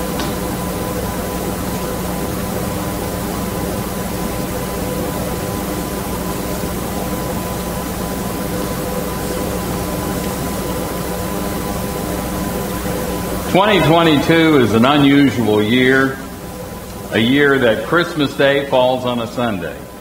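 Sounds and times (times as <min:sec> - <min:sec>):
steady hiss: 0:00.0 - 0:20.0
low hum: 0:09.4 - 0:17.8.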